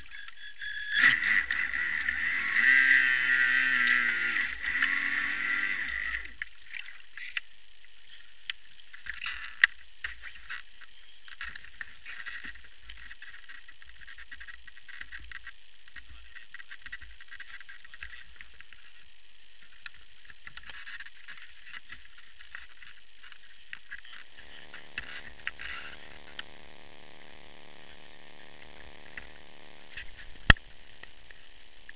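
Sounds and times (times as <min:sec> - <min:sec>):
rc boat motor whining: 0:00.0 - 0:07.2, 0:17.9 - 0:31.9.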